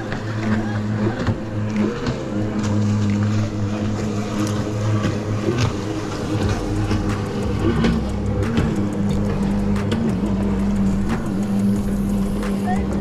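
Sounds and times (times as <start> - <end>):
jet ski engine droning: 0.0 - 13.0
low rumble: 0.0 - 13.0.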